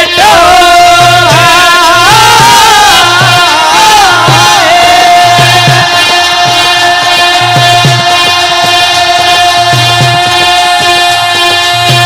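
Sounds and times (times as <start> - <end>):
hand drums beating: 0.0 - 12.0
harmonium: 0.0 - 12.0
man singing long notes: 0.0 - 12.0.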